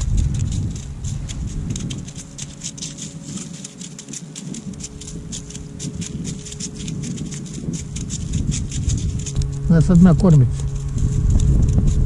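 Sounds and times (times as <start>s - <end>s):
clothing and hand rustling: 0.0s - 12.0s.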